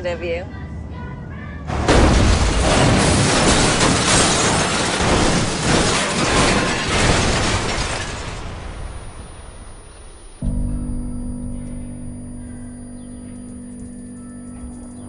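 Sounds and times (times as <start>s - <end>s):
loud car crash impact: 1.7s - 11.0s
car rolling over crunching: 1.8s - 10.7s.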